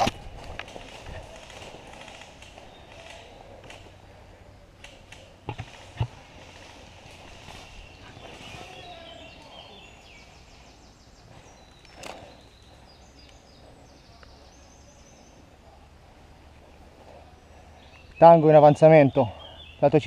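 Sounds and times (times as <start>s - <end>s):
sharp crack: 0.0s - 4.0s
birds trilling and chirping: 0.0s - 20.0s.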